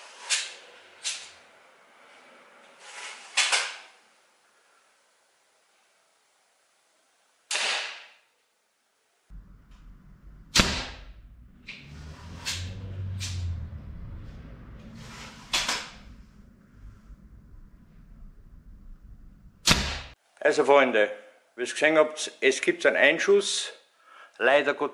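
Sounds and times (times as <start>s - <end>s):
slingshot rifle shot snaps: 7.5s - 8.1s, 10.5s - 11.1s, 19.6s - 20.2s.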